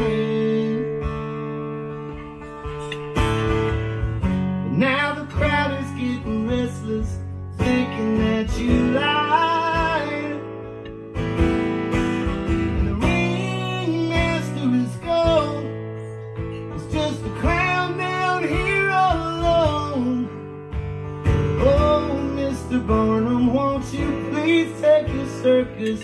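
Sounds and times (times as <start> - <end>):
man singing: 0.0 - 1.4, 4.6 - 10.7, 12.4 - 20.6, 21.3 - 26.0
acoustic guitar strumming: 0.0 - 26.0.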